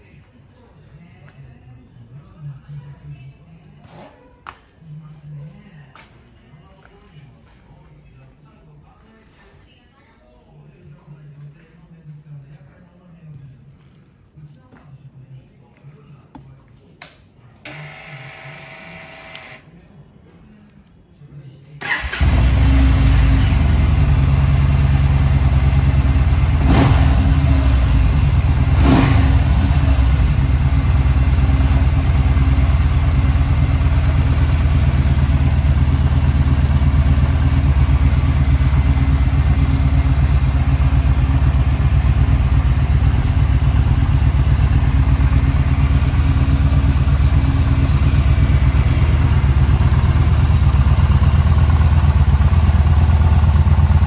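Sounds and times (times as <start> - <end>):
motorcycle engine idling: 21.8 - 54.0.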